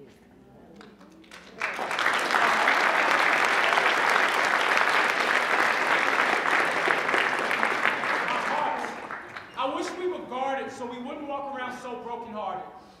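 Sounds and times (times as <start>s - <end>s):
audience applauding: 1.2s - 10.0s.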